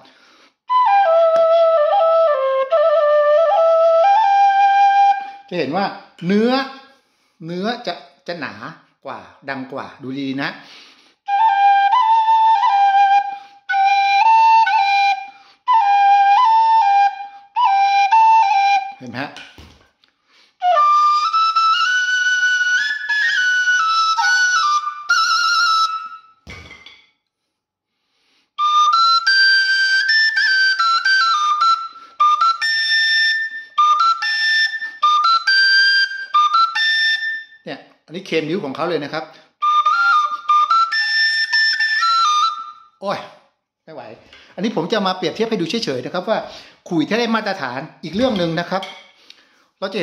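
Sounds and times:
duct flute melody: 0.7 - 5.8, 11.3 - 19.4, 20.6 - 26.4, 28.6 - 37.7, 39.6 - 43.3.

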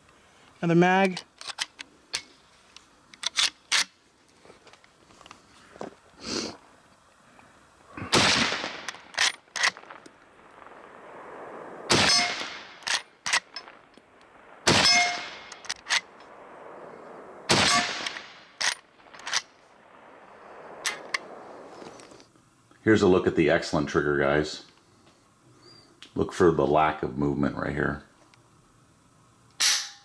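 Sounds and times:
rifle lever metallic clicks: 1.2 - 2.3, 3.1 - 3.9
rifle shots echoing: 8.0 - 22.0.

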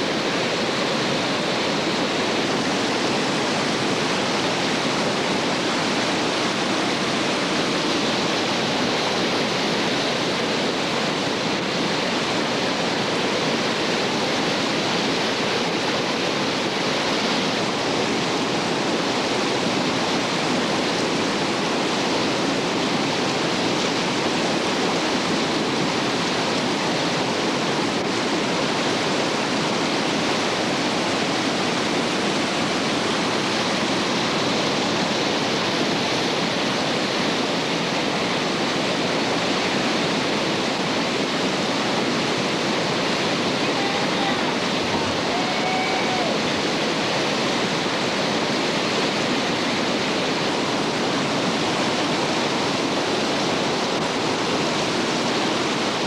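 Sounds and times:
whitewater rapids roaring: 0.0 - 56.0.

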